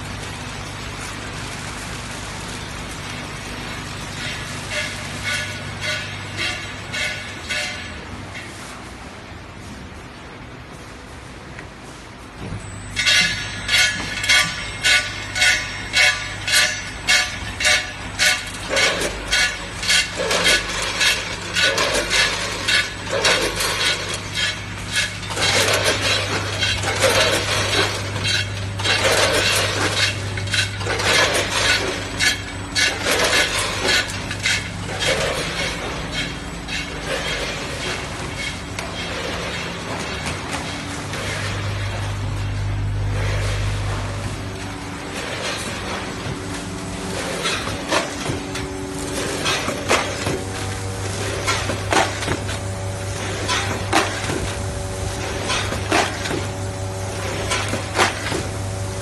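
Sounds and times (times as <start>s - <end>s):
packing machine hum: 0.0s - 59.0s.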